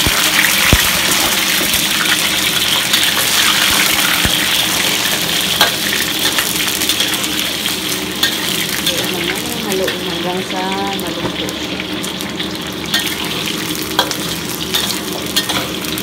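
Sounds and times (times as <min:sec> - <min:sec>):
food sizzling in hot oil: 0:00.0 - 0:16.0
spatula clicking on pan: 0:14.0 - 0:15.7.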